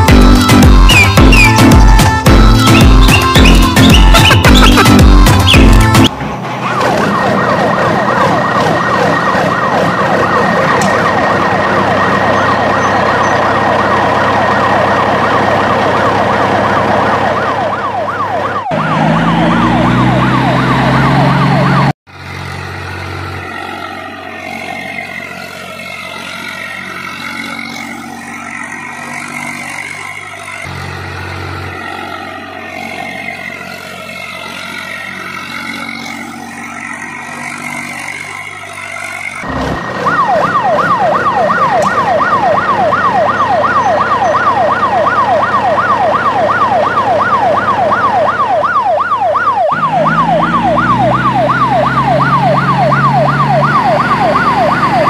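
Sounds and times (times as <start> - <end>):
police siren wailing: 0.0 - 55.0
vehicle engine: 0.0 - 55.0
low revving sweep: 39.4 - 55.0.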